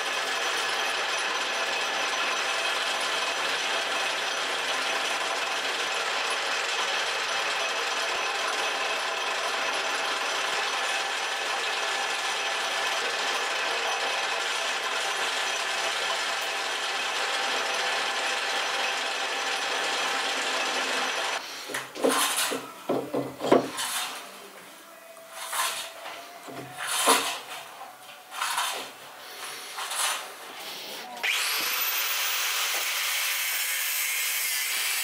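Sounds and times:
metal lathe machining: 0.0 - 21.4, 31.2 - 35.0.

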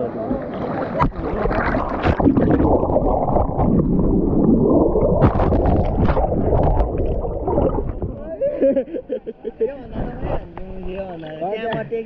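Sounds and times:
water churning and gurgling: 0.0 - 8.6
sharp water splashes: 1.0 - 8.2.

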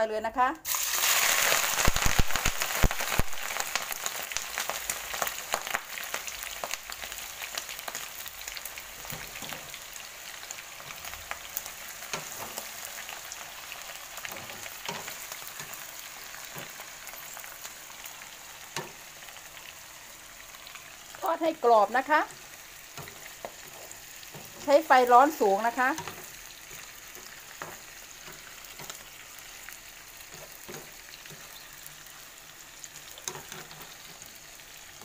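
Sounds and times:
prawns sizzling in hot oil: 0.6 - 35.0.

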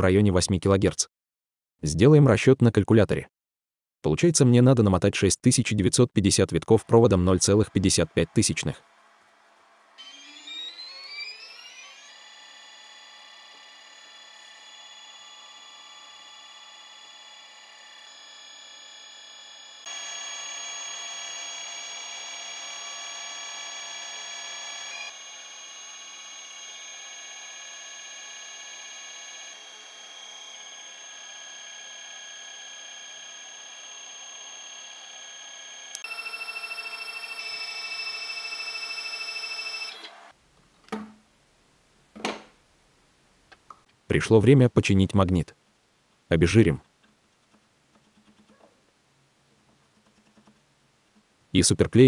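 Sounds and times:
stepper motor whining: 10.0 - 40.3.

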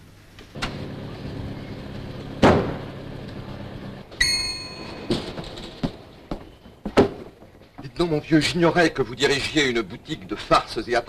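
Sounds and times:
steady low hum: 0.0 - 6.3
shop doorbell ringing: 4.2 - 5.2.

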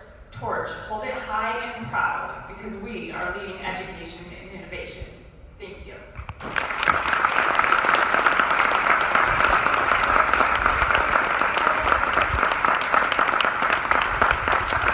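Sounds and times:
audience applauding: 6.4 - 14.9.

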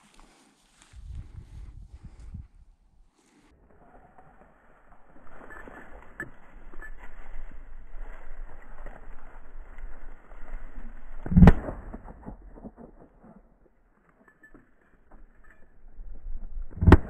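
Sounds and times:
footsteps through dry grass: 0.0 - 11.9.

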